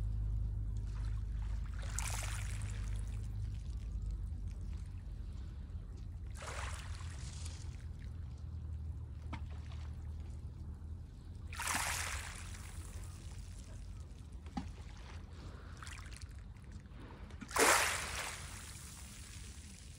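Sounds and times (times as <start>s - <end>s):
low steady rumble: 0.0s - 19.9s
waves washing over pebbles: 11.5s - 13.4s, 17.5s - 19.9s.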